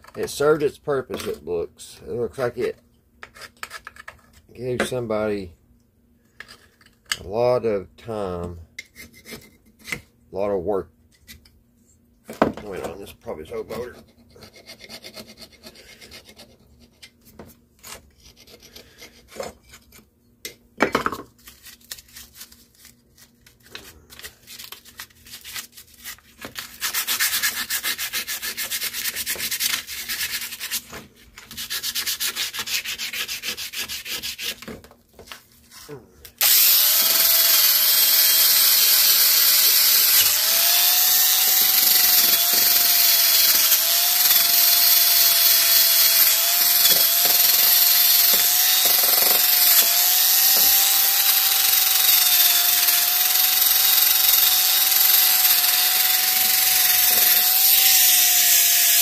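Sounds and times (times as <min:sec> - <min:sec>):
electric drill running: 0:36.4 - 0:59.0
screwdriver scraping engine part: 0:40.1 - 0:59.0.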